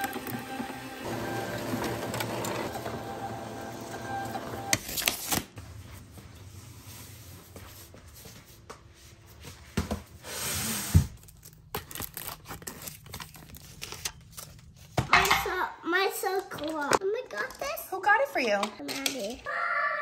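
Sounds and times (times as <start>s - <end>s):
printer running: 0.0s - 4.8s
paper rustling: 11.2s - 15.0s.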